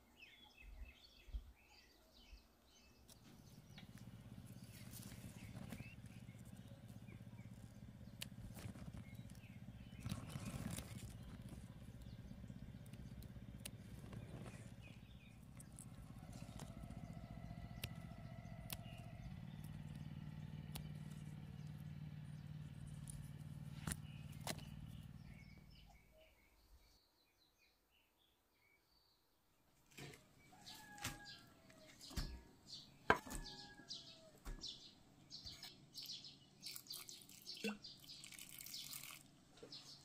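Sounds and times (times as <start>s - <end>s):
low machine hum: 3.3s - 25.9s.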